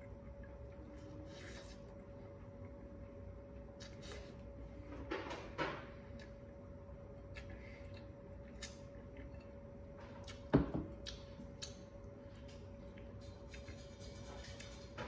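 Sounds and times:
wet eating clicks and smacks: 7.2s - 14.8s.

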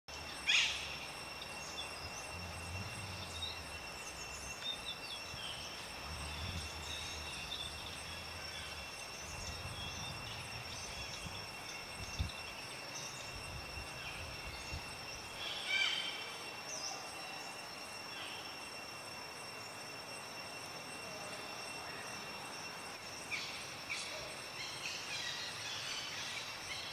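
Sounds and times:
high insect drone: 0.1s - 26.9s
low rumble: 1.9s - 12.4s.

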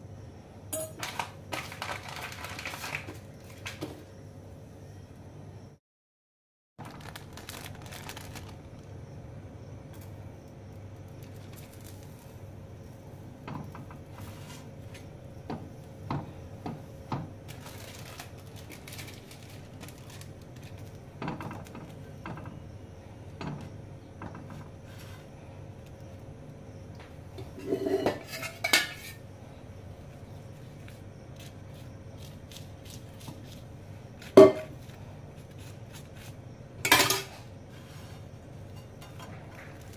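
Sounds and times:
steady low hum: 7.2s - 39.9s
metal spoon scraping on griddle: 27.4s - 29.2s.

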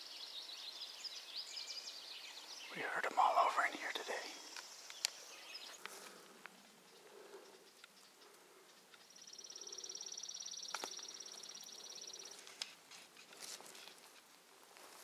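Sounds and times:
faint ticks: 4.5s - 5.2s, 5.8s - 10.0s.

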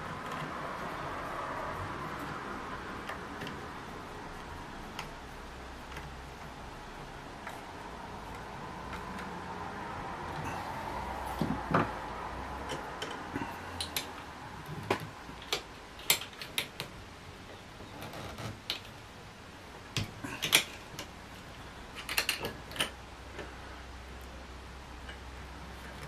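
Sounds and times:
air rifle parts clicking and knocking: 21.9s - 23.5s.

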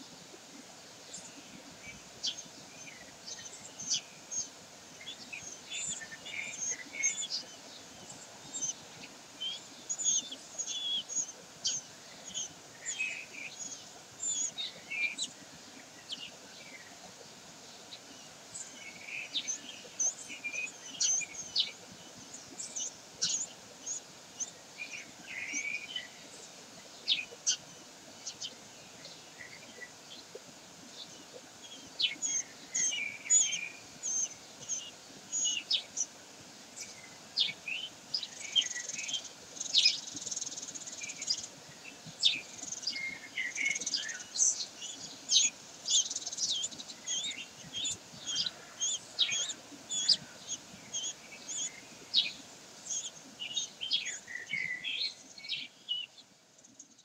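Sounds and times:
faint steady hiss: 0.0s - 57.0s
high bird chirps and calls: 2.0s - 15.4s, 18.6s - 21.8s, 31.1s - 36.1s, 42.2s - 56.1s.

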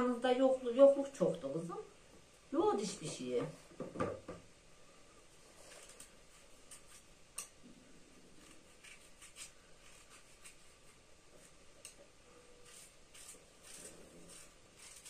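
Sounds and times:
knife scraping pumpkin rind: 5.7s - 7.5s, 8.3s - 15.0s.

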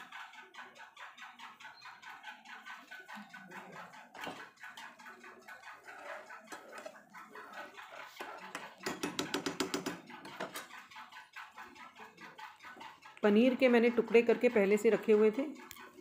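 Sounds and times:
thick gravy boiling and popping: 0.0s - 16.0s.

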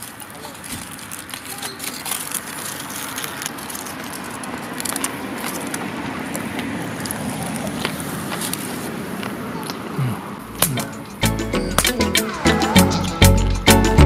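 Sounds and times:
crunchy chewing of rice ball: 0.0s - 9.0s.

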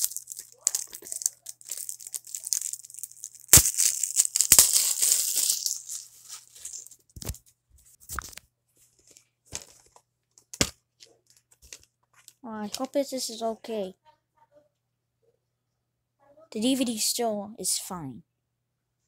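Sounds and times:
plastic shrink wrap crinkling: 0.0s - 7.4s.

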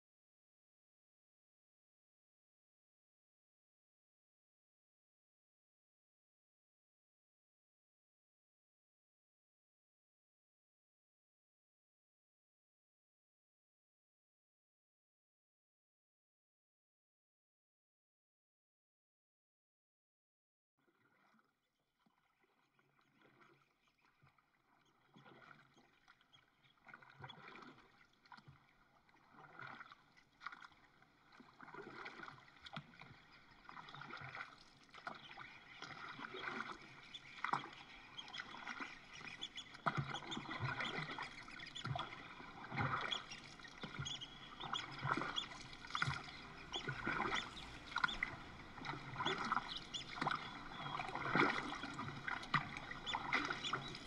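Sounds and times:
paddle splashing water: 20.9s - 54.0s.

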